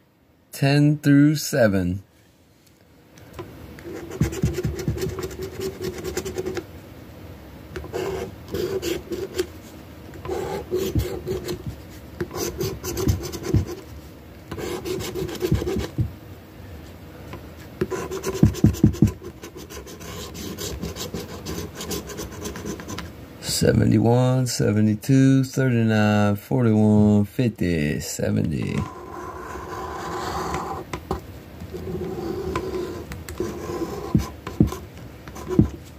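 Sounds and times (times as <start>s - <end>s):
scratching lottery ticket: 3.8s - 6.6s, 7.8s - 9.5s, 10.2s - 11.6s, 12.2s - 13.8s, 14.5s - 16.0s, 17.8s - 23.0s, 31.8s - 35.7s.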